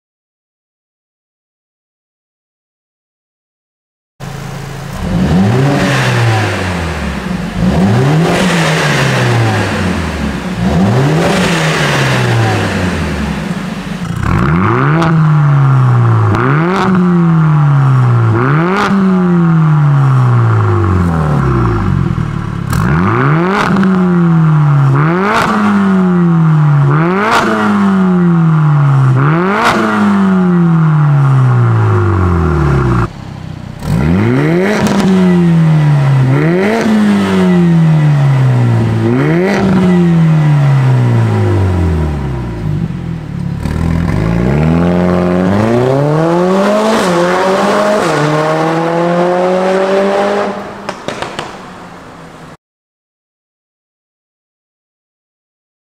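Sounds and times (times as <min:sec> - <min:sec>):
car engine revving: 0:04.2 - 0:52.6
exhaust crackles and pops: 0:50.9 - 0:51.9.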